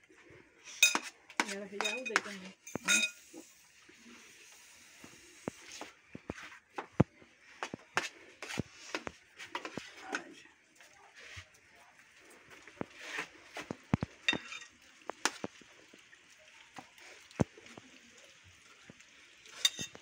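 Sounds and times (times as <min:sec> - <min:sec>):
cutlery clinking on plates: 0:00.7 - 0:03.2, 0:14.2 - 0:14.7, 0:19.5 - 0:20.0.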